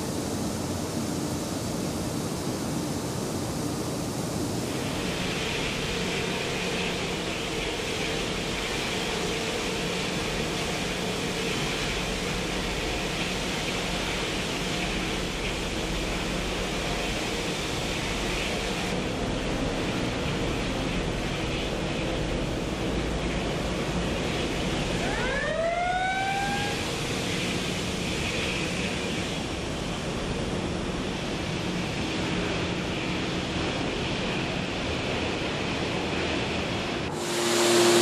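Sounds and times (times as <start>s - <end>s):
steel furnace rushing noise: 0.0s - 38.0s.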